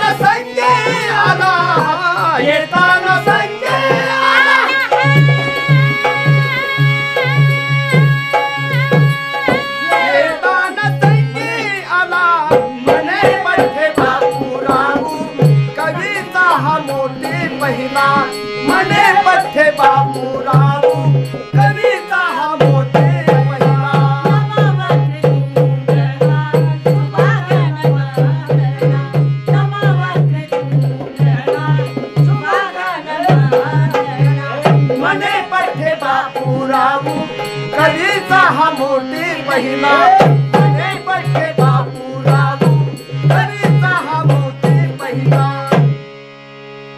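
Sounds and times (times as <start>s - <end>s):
drum beat: 0.0s - 8.2s
male and female voices singing: 0.0s - 46.0s
harmonium: 0.0s - 46.9s.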